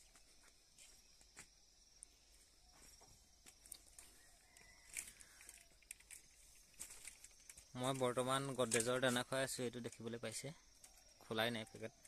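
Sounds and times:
footsteps: 0.0s - 1.6s, 2.2s - 5.1s.

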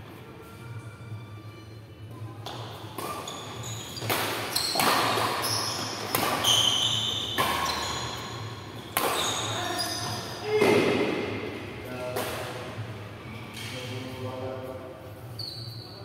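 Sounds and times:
rackets hitting shuttlecock: 2.4s - 12.6s.

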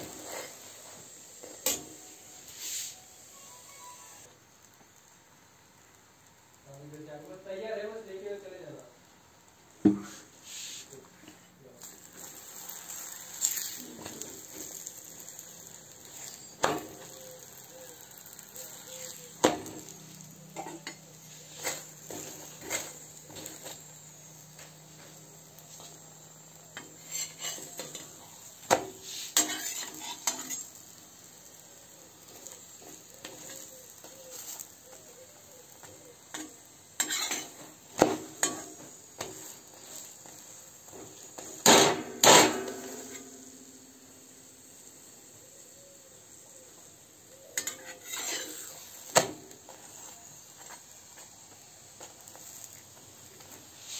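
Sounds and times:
metal spatula scraping pan: 18.9s - 23.8s, 26.8s - 28.2s, 29.0s - 30.8s, 36.3s - 37.6s, 38.2s - 40.1s, 47.5s - 48.9s.

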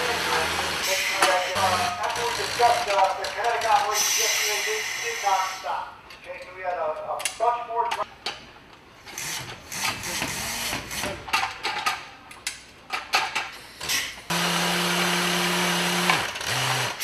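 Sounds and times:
hoist motor running: 14.3s - 17.0s.

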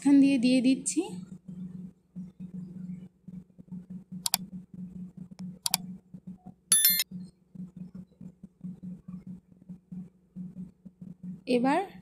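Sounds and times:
mouse clicks: 4.2s - 4.4s, 5.6s - 5.8s
bright bell chime: 6.7s - 7.0s.

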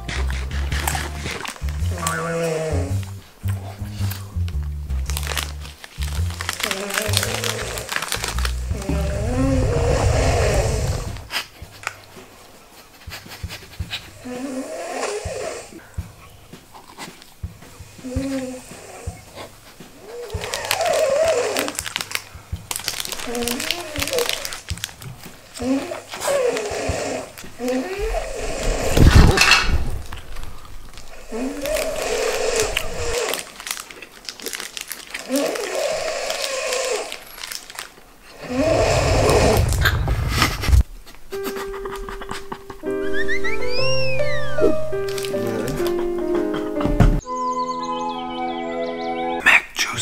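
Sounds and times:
man snoring loudly: 6.7s - 11.3s, 38.4s - 39.8s
man snoring heavily: 7.0s - 11.3s, 14.2s - 15.8s, 25.6s - 29.3s, 31.2s - 33.5s, 38.4s - 39.8s.

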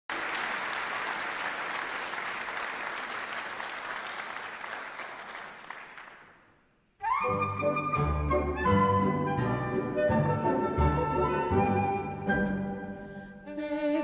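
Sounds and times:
audience applauding: 0.1s - 6.6s.

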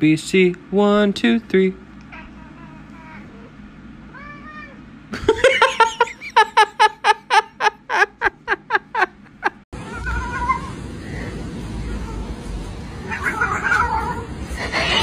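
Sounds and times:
cat meowing: 4.1s - 4.8s, 9.8s - 10.8s, 11.8s - 15.0s.

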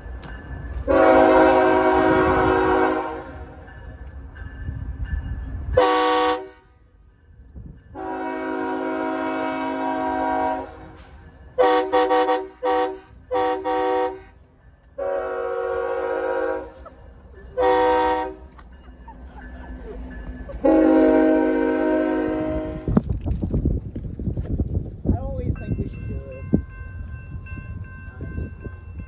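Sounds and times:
low train rumble: 0.0s - 29.0s
locomotive air horn blasts: 0.8s - 3.6s, 5.8s - 6.8s, 8.0s - 11.0s, 11.6s - 14.4s, 15.0s - 16.8s, 17.6s - 18.5s, 20.6s - 22.9s.

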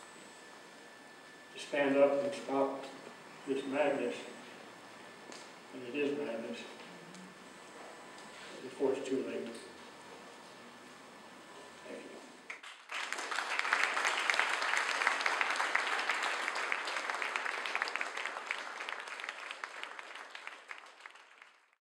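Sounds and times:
audience applauding: 12.5s - 21.8s.

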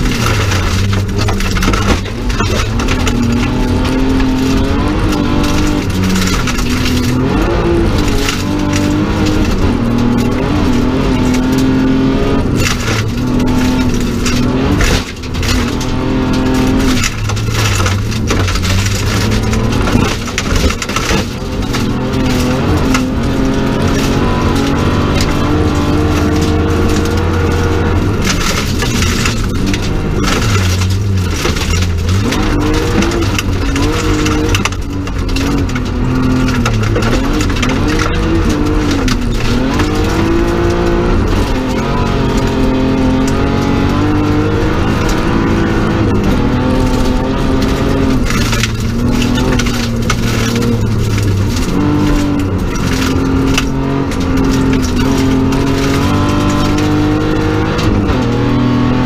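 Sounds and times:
rally car engine revving: 0.0s - 59.0s
tyre and gravel noise: 0.0s - 59.0s.

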